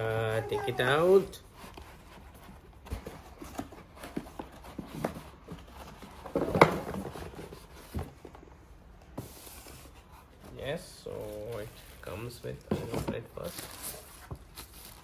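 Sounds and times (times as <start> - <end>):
cardboard box knocks and scrapes: 2.8 - 8.3.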